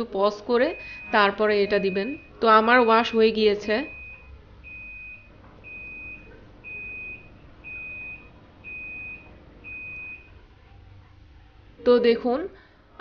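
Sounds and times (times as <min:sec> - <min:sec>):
washing machine beeping: 0:00.0 - 0:10.5.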